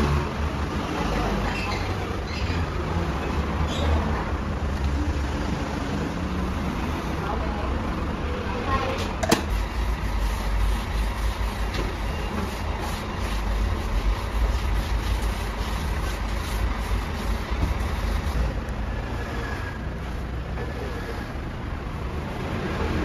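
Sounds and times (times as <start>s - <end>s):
low mechanical rumble: 7.2s - 22.8s.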